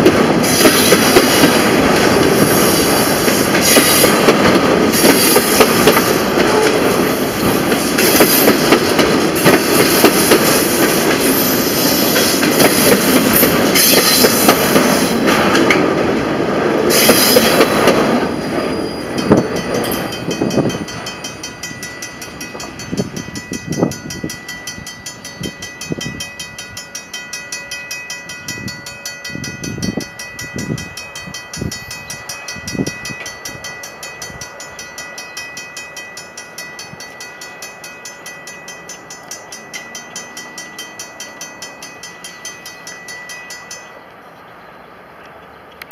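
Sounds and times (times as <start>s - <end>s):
train wheels thumping over rail joints: 0.0s - 23.2s
high ringing tone with ticking: 18.3s - 44.9s.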